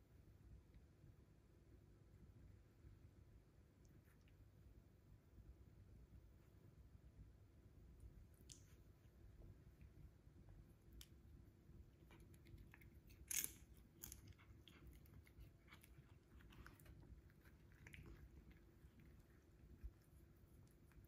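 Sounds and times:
cat chewing crunchy treat: 12.0s - 21.0s.

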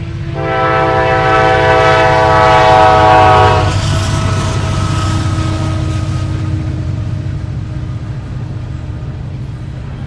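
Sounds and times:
diesel engine rumble: 0.0s - 10.0s
locomotive air horn blast: 0.2s - 7.0s.

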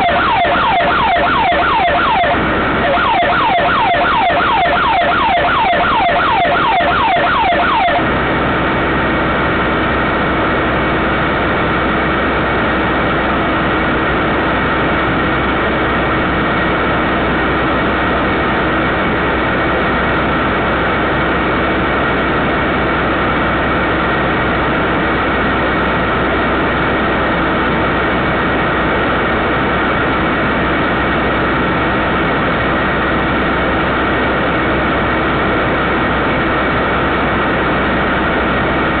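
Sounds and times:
siren wailing: 0.0s - 8.6s.

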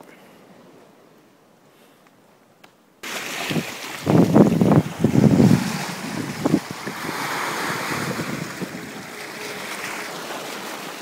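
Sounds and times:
sea water surging and splashing: 3.0s - 11.0s
wind buffeting microphone: 3.4s - 9.6s.

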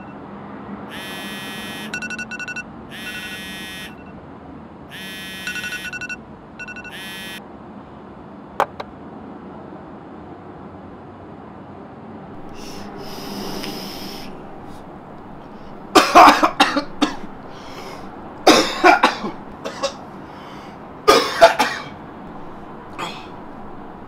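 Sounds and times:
breathy hiss: 12.4s - 24.0s
man coughing hard: 14.2s - 20.0s, 21.0s - 22.0s, 22.9s - 23.7s.

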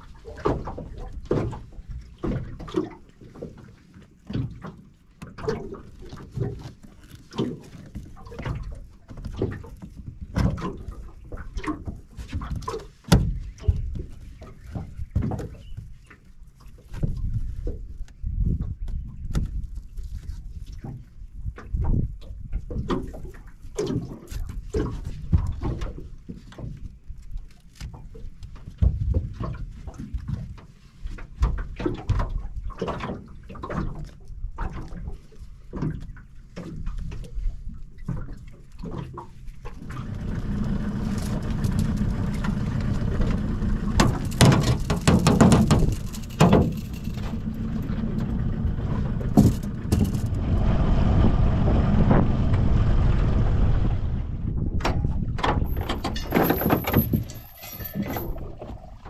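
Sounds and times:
outboard motor running: 38.7s - 57.4s
knocks in metal dinghy: 39.8s - 50.4s, 54.7s - 58.4s.

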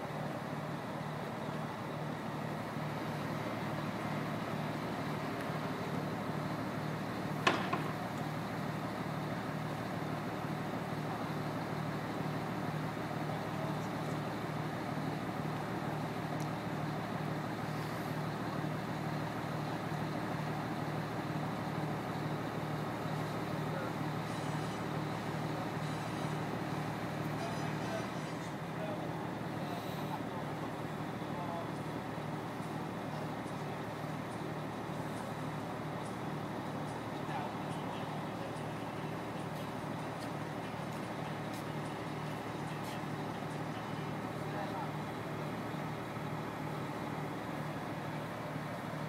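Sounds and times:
crane engine throbbing: 0.0s - 49.0s
sharp knock: 7.4s - 8.0s.

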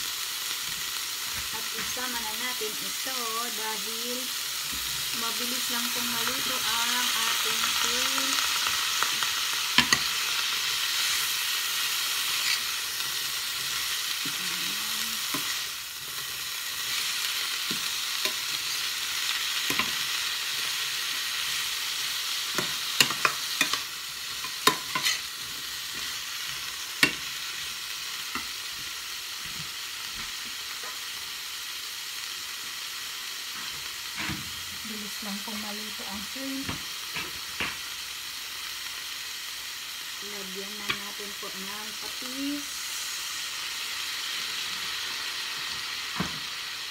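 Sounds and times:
food sizzling in frying pan: 0.0s - 46.9s
metal spoon scraping pan: 12.2s - 12.8s, 22.6s - 25.3s.

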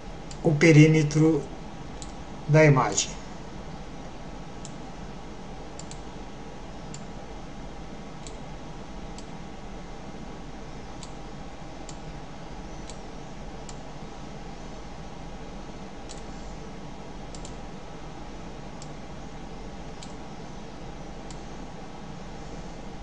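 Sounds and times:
computer mouse clicking: 5.8s - 6.1s, 11.0s - 11.2s, 16.0s - 16.3s, 17.3s - 17.6s, 20.0s - 20.2s.

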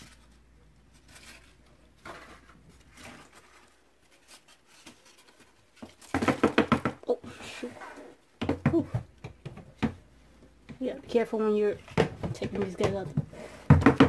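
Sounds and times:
cardboard rustling and tapping: 0.0s - 7.1s, 11.8s - 14.0s.

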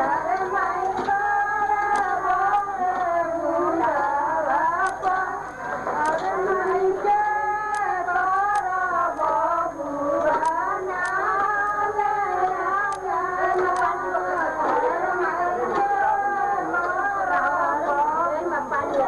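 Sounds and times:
sharp tick: 7.7s - 9.4s.

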